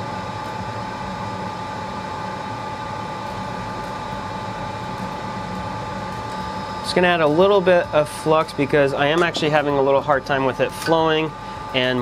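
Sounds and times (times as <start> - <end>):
faint constant whine: 0.0 - 12.0
fan whirring: 2.5 - 12.0.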